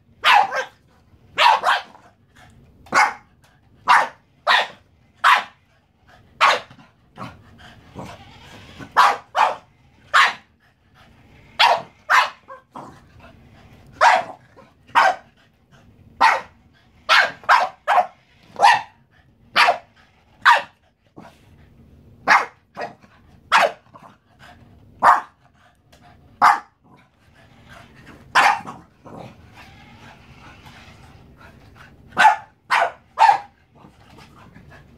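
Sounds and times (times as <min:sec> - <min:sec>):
dog barking: 0:00.2 - 0:00.8, 0:01.4 - 0:02.0, 0:02.9 - 0:05.6, 0:06.4 - 0:06.7, 0:09.0 - 0:10.5, 0:11.6 - 0:12.6, 0:14.0 - 0:15.3, 0:16.2 - 0:19.0, 0:19.6 - 0:20.8, 0:22.2 - 0:23.9, 0:25.0 - 0:25.4, 0:26.4 - 0:26.8, 0:28.4 - 0:28.8, 0:32.2 - 0:33.5.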